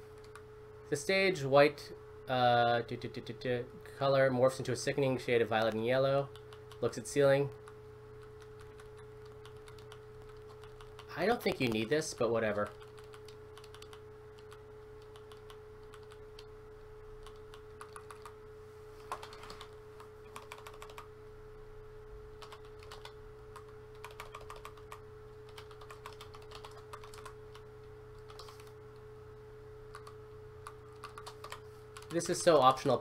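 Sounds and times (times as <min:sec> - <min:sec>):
low electrical hum: 0:00.0 - 0:33.0
keyboard typing clicks: 0:07.6 - 0:11.9, 0:12.7 - 0:16.5, 0:17.2 - 0:18.4, 0:19.1 - 0:21.1, 0:22.4 - 0:27.6, 0:28.2 - 0:28.7, 0:29.9 - 0:32.2.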